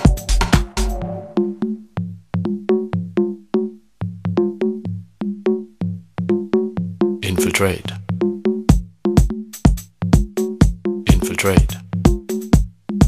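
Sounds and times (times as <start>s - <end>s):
clicky percussive synth notes: 0.0s - 1.7s
kick drum and hi-hats: 0.0s - 13.0s.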